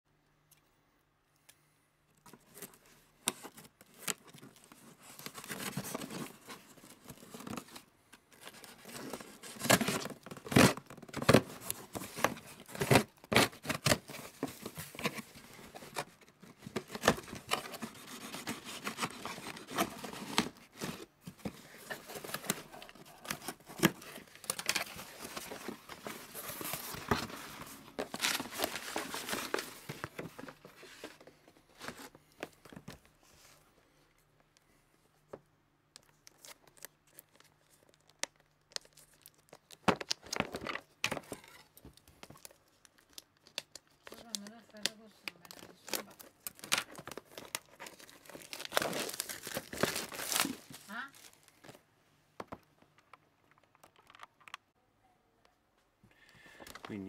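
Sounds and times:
cardboard rustling: 2.3 - 33.5, 45.4 - 51.8
packing tape tearing: 8.4 - 15.9, 42.4 - 51.4.

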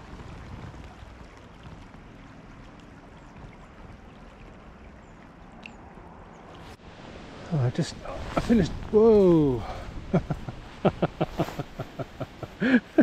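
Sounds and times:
wind rumbling on microphone: 0.0 - 12.7
river rushing: 4.1 - 13.0.

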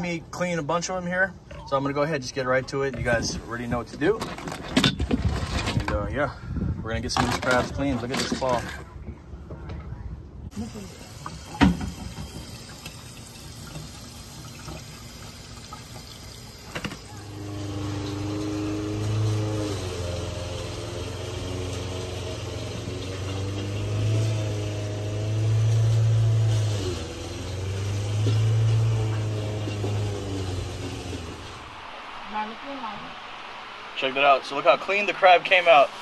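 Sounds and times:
low mechanical hum: 8.8 - 33.9.

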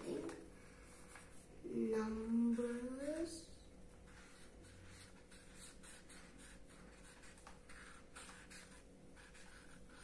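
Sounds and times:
marker scratching on paper: 4.0 - 10.0.

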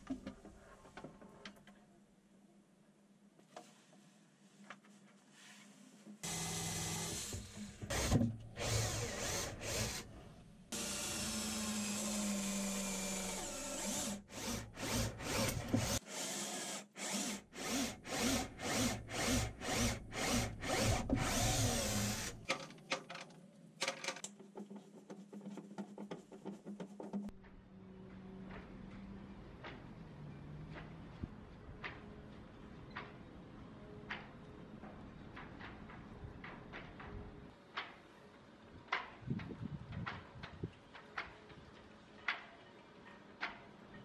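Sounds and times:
cordless drill boring into fibreglass: 10.8 - 22.4.

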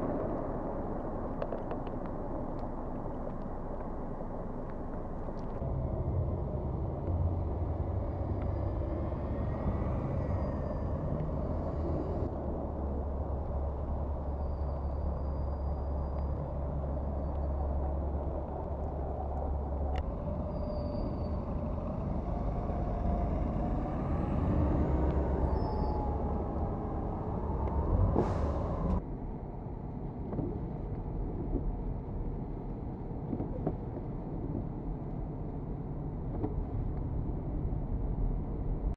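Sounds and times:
car engines: 0.0 - 29.2
low rumble: 0.0 - 38.9.

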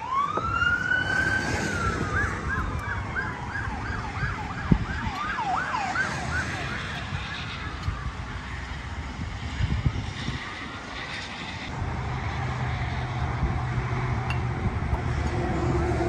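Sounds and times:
emergency siren wailing and yelping: 0.0 - 9.8.

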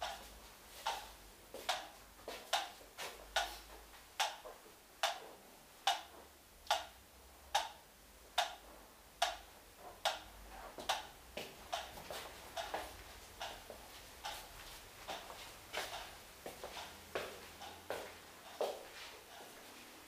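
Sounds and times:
sharp regular ticking: 9.2 - 18.6.

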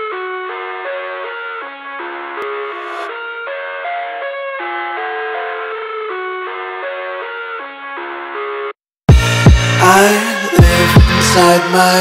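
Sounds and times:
thin instrumental melody: 2.4 - 6.3.

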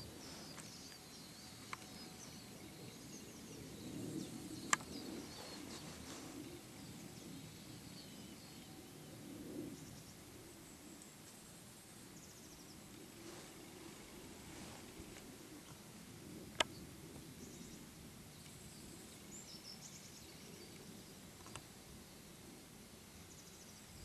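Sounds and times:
distant birds chirping: 0.0 - 10.2.

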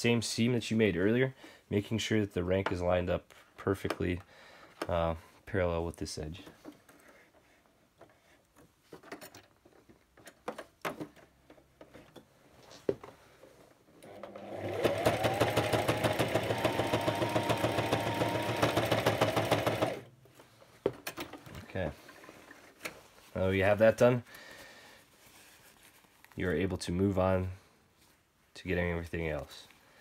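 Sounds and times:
electric sewing machine stitching: 14.0 - 20.1.

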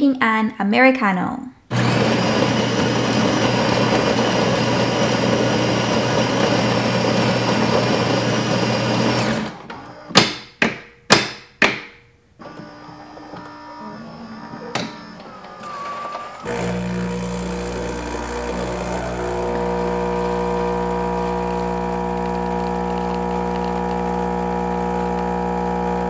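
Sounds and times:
coffee grinder whirring: 1.7 - 9.6, 15.9 - 26.0.

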